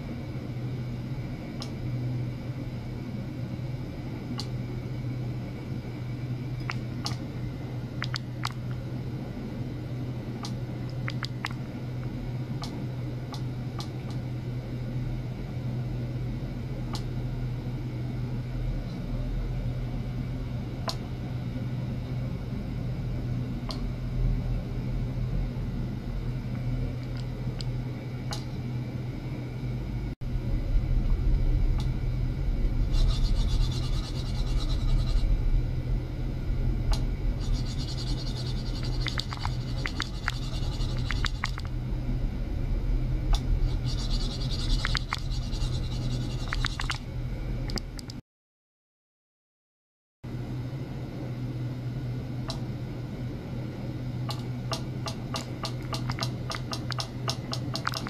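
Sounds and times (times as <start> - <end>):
electrical hum: 0.0 - 48.2, 50.3 - 58.0
faint clicks and ticks: 36.9 - 41.7, 54.3 - 58.0.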